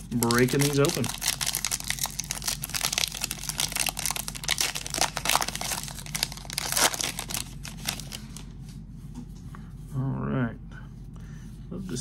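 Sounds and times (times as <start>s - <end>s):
wrapper crinkling and tearing: 0.0s - 8.4s.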